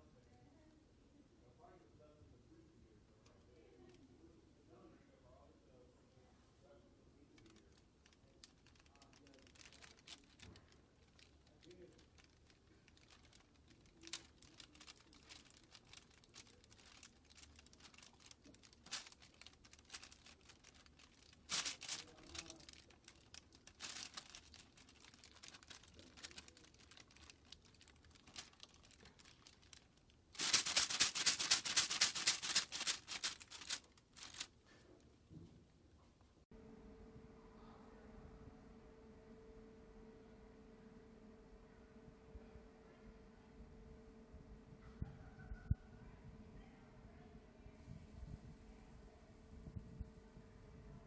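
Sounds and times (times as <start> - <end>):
light clicks and rustles: 7.3 - 35.6
flapping toy wings: 7.5 - 29.8, 30.4 - 34.5.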